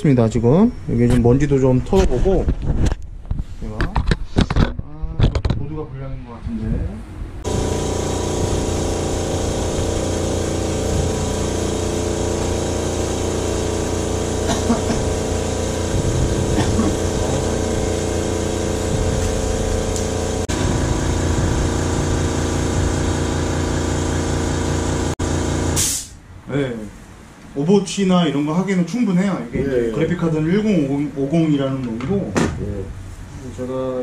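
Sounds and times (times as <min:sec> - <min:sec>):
air compressor motor hum: 0:07.4 - 0:26.2.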